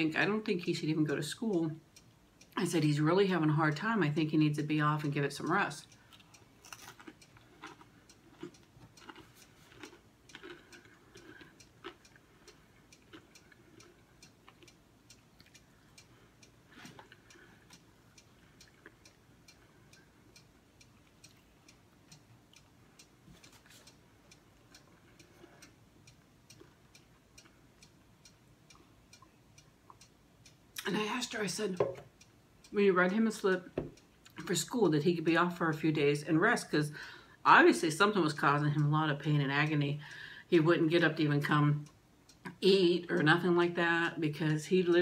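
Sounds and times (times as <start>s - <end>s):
clock ticking: 0.0s - 45.0s
eating and mouth sounds: 6.1s - 15.7s.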